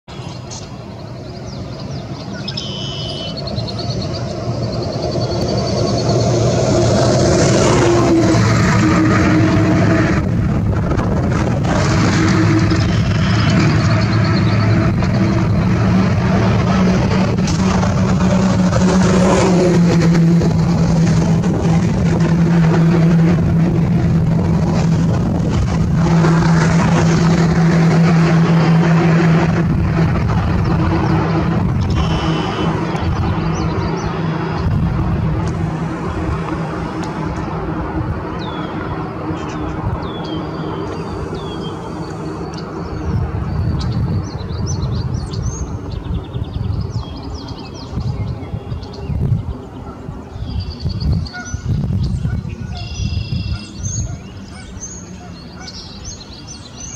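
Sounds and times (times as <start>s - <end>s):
engine humming: 0.0s - 56.9s
birds chirping: 0.1s - 7.7s, 12.1s - 17.3s, 30.3s - 56.9s
steady low rumble: 3.4s - 54.5s
downward-sliding whistles: 31.9s - 32.8s.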